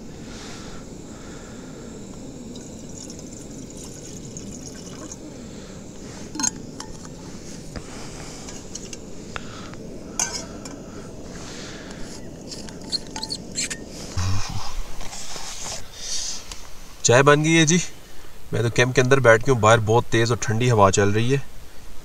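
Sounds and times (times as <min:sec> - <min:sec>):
camp stove rumble: 0:00.0 - 0:16.4
liquid poured into pot: 0:02.5 - 0:05.2
cookware clinking: 0:06.4 - 0:07.1, 0:10.2 - 0:10.8.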